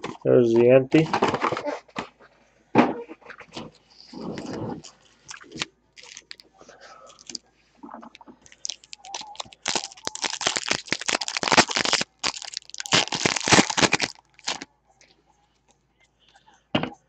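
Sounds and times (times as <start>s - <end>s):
plastic wrapper crinkling: 4.4s - 6.5s, 7.1s - 7.4s, 8.4s - 14.6s.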